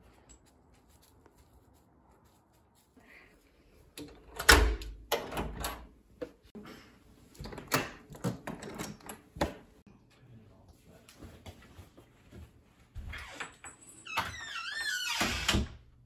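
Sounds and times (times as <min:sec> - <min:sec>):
door latch and handle rattling: 0:04.0 - 0:06.0, 0:07.4 - 0:09.3.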